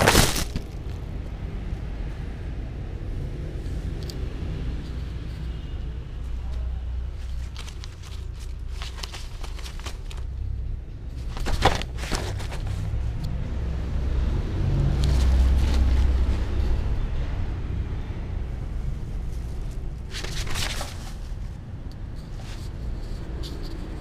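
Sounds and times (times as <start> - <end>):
paper rustling: 0.0 - 0.9, 7.1 - 10.4, 11.1 - 13.0, 15.0 - 16.4, 19.4 - 21.6.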